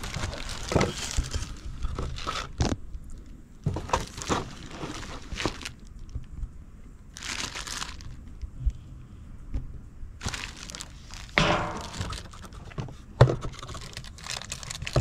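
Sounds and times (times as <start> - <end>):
plastic wrapping crinkling: 0.0 - 2.8, 3.7 - 6.2, 7.1 - 8.4, 10.2 - 12.8, 13.4 - 15.0.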